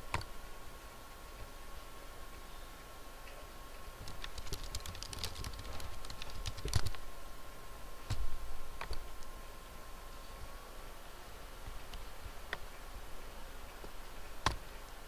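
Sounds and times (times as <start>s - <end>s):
typing on computer keyboard: 4.0s - 7.0s.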